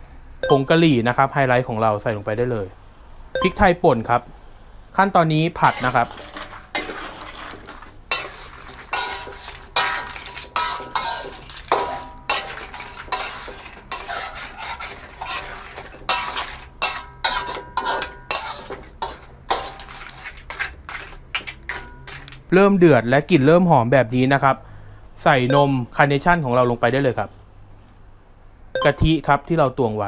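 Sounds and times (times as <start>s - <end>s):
spatula scraping metal wok: 5.6s - 22.5s.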